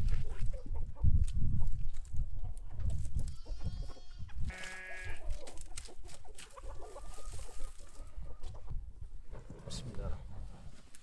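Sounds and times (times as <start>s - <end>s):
farm animal bleating: 3.2s - 5.4s
twigs rustling and crackling: 4.5s - 8.1s.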